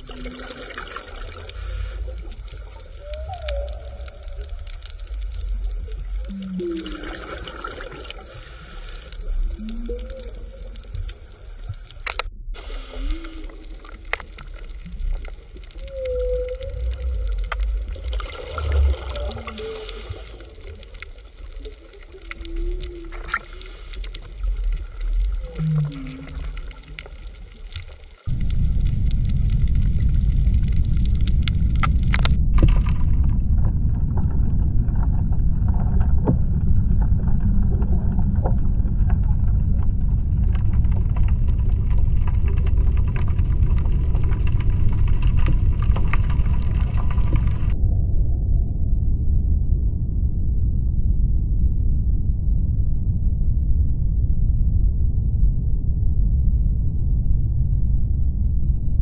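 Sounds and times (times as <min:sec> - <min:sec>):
low underwater rumble: 0:00.0 - 0:59.0
faint clicks: 0:01.5 - 0:07.0, 0:08.2 - 0:32.8
whale-like moaning calls: 0:01.6 - 0:07.6, 0:09.4 - 0:11.2, 0:12.8 - 0:14.1, 0:14.8 - 0:27.8.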